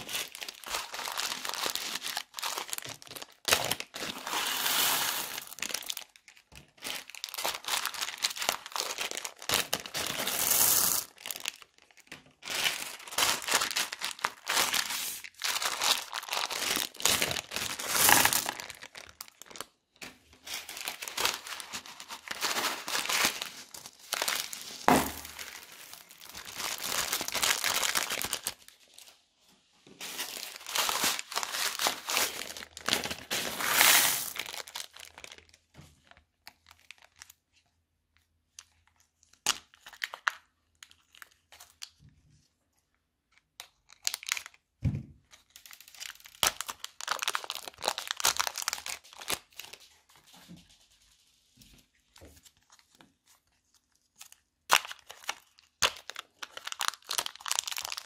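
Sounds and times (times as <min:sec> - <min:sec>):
plastic bags crinkling: 0:00.0 - 0:29.1, 0:29.8 - 0:37.4, 0:43.6 - 0:44.6, 0:45.4 - 0:49.9, 0:54.1 - 0:58.0
plastic beads rattling and clicking: 0:33.3 - 0:34.7.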